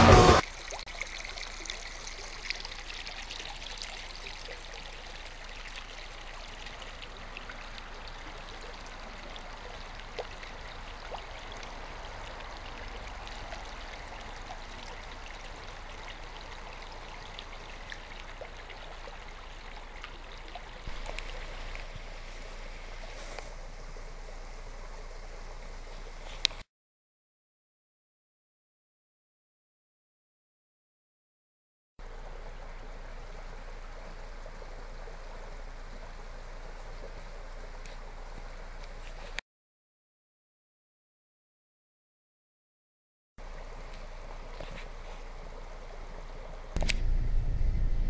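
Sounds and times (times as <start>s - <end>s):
creek water rushing over stones: 0.0s - 26.6s, 32.0s - 39.4s, 43.4s - 47.0s.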